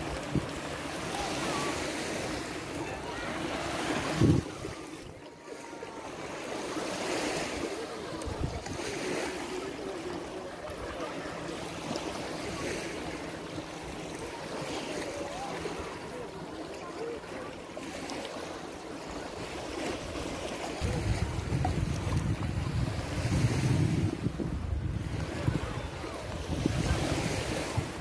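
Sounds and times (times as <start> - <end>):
small waves on sandy shore: 0.0 - 28.0
wind buffeting microphone: 4.0 - 4.8, 8.2 - 8.8, 20.8 - 28.0.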